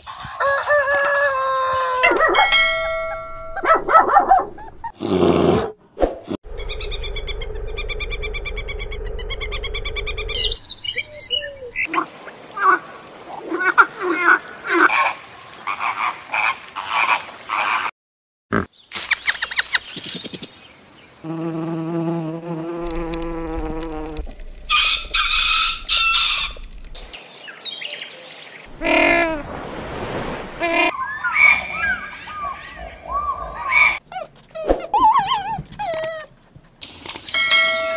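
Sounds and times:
rapid chirps: 19.1 - 20.6
rising and falling calls: 24.6 - 27.1.

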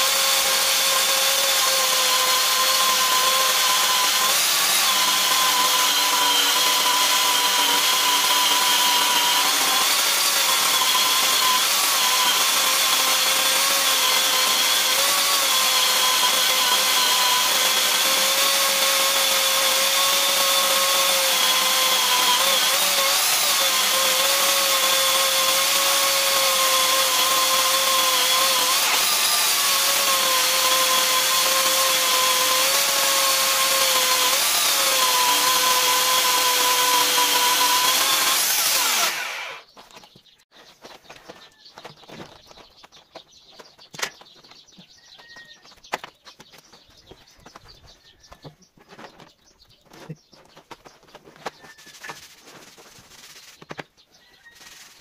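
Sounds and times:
electric chainsaw cutting log: 0.0 - 39.7.

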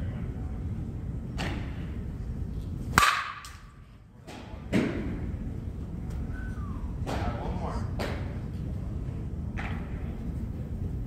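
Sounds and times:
bat cracking against ball: 2.9 - 3.7.

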